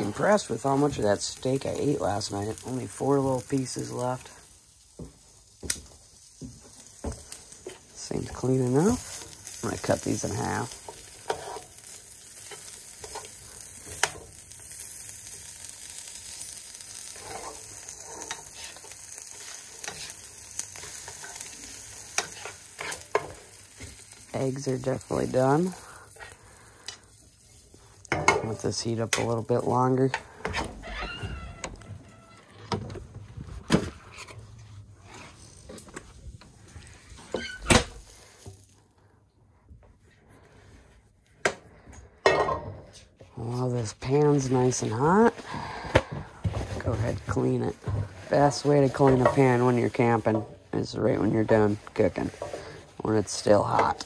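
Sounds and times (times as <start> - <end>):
food sizzling in a frying pan: 0.0 - 32.2, 34.2 - 39.2, 41.7 - 54.0
door squeak: 30.5 - 33.0, 37.3 - 37.9.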